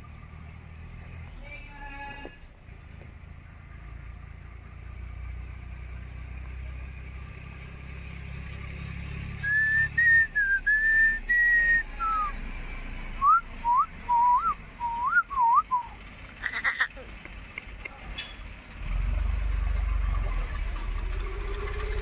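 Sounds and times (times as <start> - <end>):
person whistling: 9.4 - 12.3, 13.2 - 16.0.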